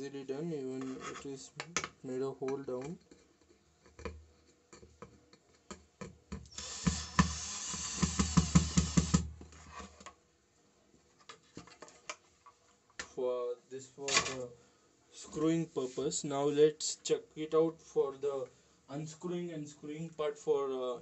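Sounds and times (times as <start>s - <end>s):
cordless drill driving a screw: 6.5s - 9.3s.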